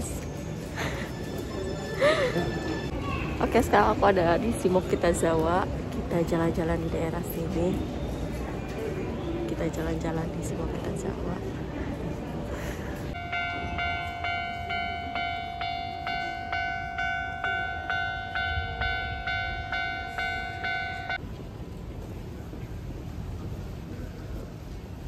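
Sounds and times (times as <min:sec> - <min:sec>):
low street rumble: 0:00.0 - 0:25.0
level crossing warning bell: 0:13.1 - 0:21.2.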